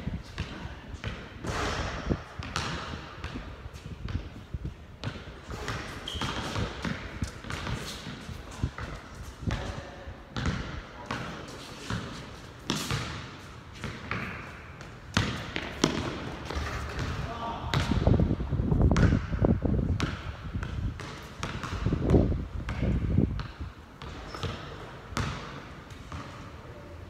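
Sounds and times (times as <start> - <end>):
basketball bouncing on hard court: 0.3 - 18.3, 18.9 - 26.4.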